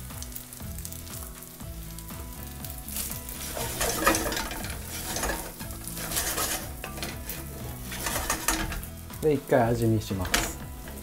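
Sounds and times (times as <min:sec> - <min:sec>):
rice sizzling in a frying pan: 0:00.0 - 0:11.0
wooden spatula scraping a pan: 0:03.0 - 0:09.1.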